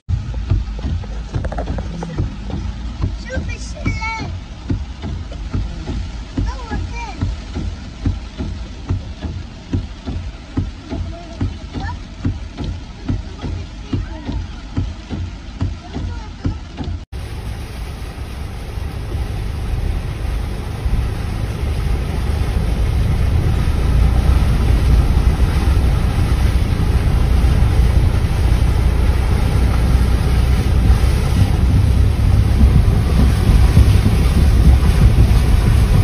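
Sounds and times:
floodwater rushing: 0.0s - 36.0s
wind rumble on microphone: 17.2s - 36.0s.

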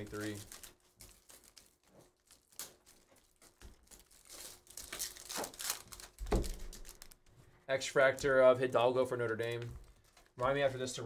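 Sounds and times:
foil wrapper crinkling and tearing: 0.0s - 7.3s
trading cards handled: 0.0s - 7.3s.

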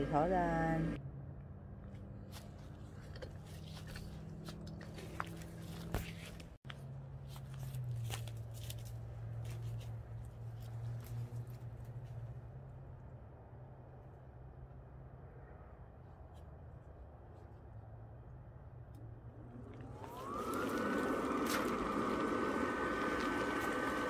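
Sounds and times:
blower fan humming: 19.2s - 24.0s.

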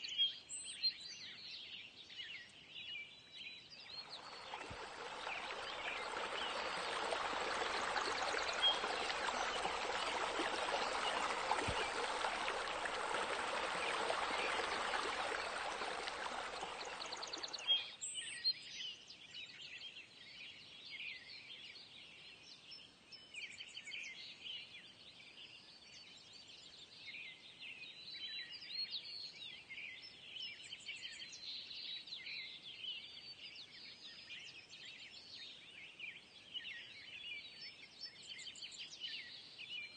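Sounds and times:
splashing water: 3.9s - 18.0s.

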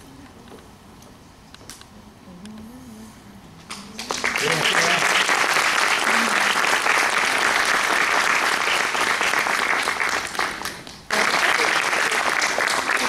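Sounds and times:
audience applauding: 3.7s - 13.0s.

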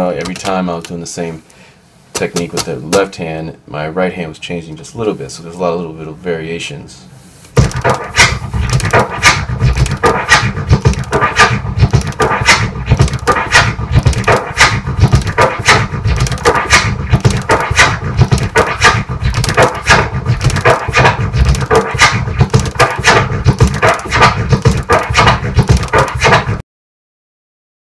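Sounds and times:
turntable scratching: 2.2s - 3.1s, 7.5s - 26.6s.

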